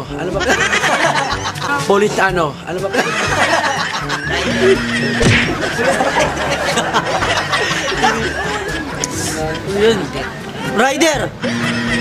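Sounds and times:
background music: 0:00.0 - 0:12.0
people giggling and laughing: 0:00.2 - 0:02.1, 0:02.8 - 0:09.6, 0:11.4 - 0:12.0.

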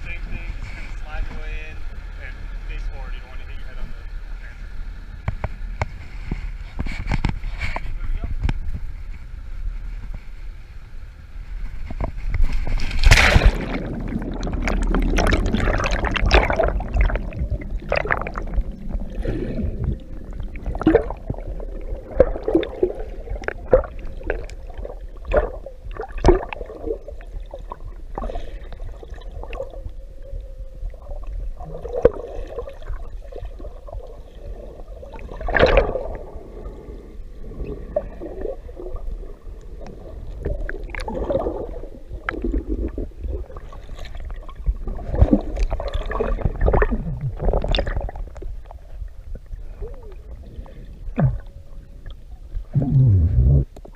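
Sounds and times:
muffled underwater noise: 0:00.0 - 0:06.2
sharp underwater clicks and knocks: 0:05.2 - 0:09.2
underwater bubbles rushing: 0:12.0 - 0:53.9.

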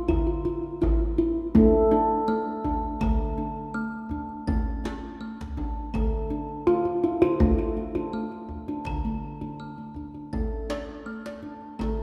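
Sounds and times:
deep drum beats: 0:00.0 - 0:03.6, 0:04.5 - 0:09.4.

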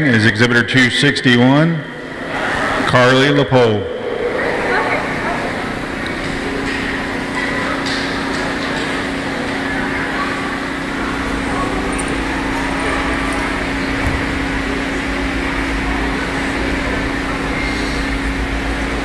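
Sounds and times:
low hum: 0:00.0 - 0:08.6.

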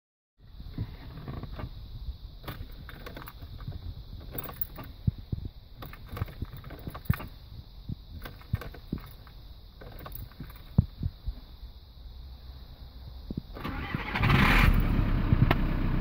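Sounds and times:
car starter clunking: 0:13.6 - 0:15.7.

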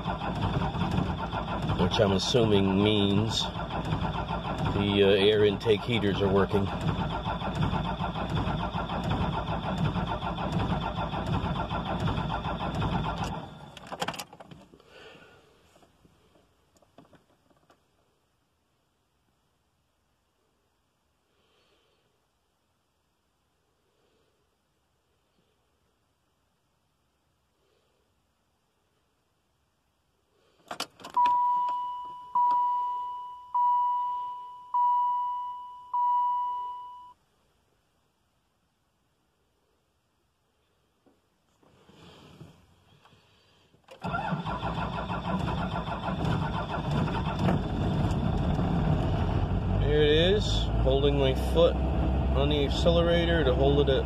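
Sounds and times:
starter cranking diesel engine: 0:00.0 - 0:14.3, 0:43.8 - 0:54.0
dashboard warning chime: 0:31.2 - 0:37.2.

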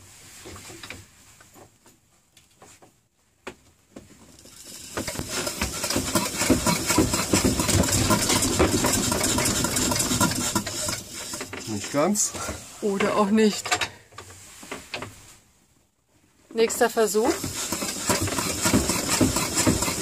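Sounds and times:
hand-cranked engine clatter: 0:04.2 - 0:14.0, 0:16.6 - 0:20.0.

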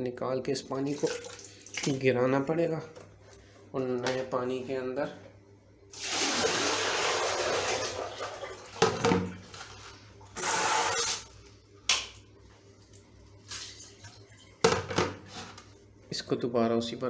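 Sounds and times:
water pouring: 0:00.8 - 0:02.0, 0:05.9 - 0:08.8
plastic basin knocking on tiles: 0:08.8 - 0:09.3.

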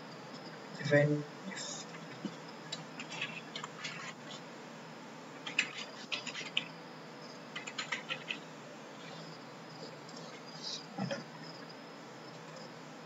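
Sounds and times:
keyboard typing: 0:02.2 - 0:04.4, 0:05.4 - 0:06.7, 0:07.5 - 0:08.4.

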